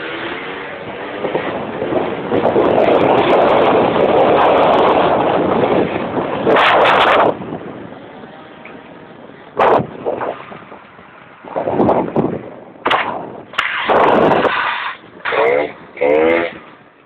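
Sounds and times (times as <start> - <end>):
wind noise on microphone: 0.0 - 17.0
scooter engines running: 12.0 - 17.0.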